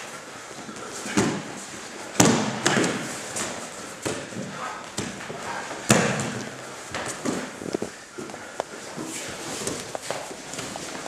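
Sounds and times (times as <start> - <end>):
bodies thudding on padded mat: 1.1 - 5.2
shuffling and rustling: 3.0 - 11.0.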